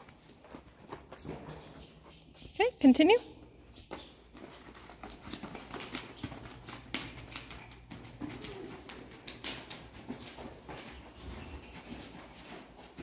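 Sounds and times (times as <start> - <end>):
hooves trotting on sand: 0.0 - 13.0
footsteps: 3.5 - 13.0.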